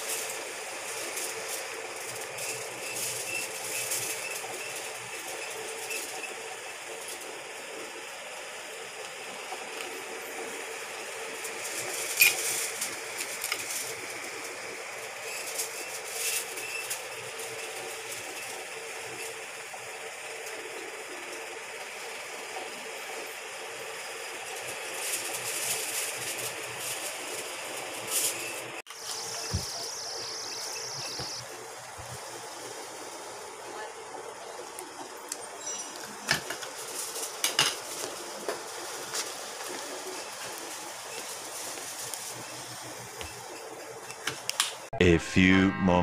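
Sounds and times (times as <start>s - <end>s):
faint hum: 29.0s - 34.9s, 45.0s - 46.0s.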